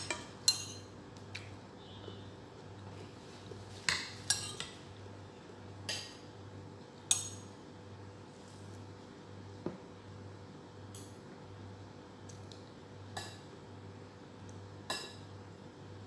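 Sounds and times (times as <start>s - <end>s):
metal spoon clinking against bowl: 0.0s - 0.9s, 7.1s - 7.5s.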